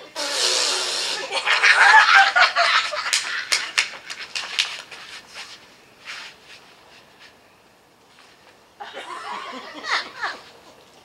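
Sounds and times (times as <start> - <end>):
audience laughing and whooping: 1.3 - 3.8
people clapping: 2.6 - 4.9.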